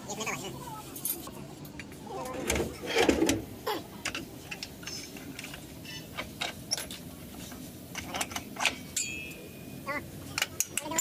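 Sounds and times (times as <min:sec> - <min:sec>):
metallic clicks and clinks: 0:10.3 - 0:11.0.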